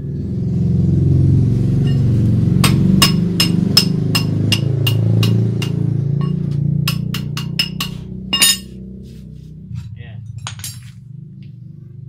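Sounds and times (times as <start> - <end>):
low engine drone: 0.0 - 12.0
metal-on-metal taps: 1.8 - 8.7.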